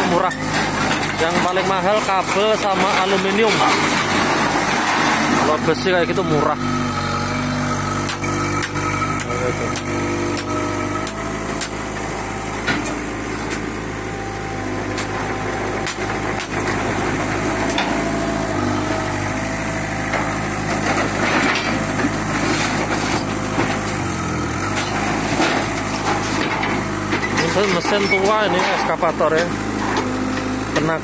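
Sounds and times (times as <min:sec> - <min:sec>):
excavator diesel engine running: 0:00.0 - 0:31.0
scrap metal clanks: 0:24.7 - 0:30.2.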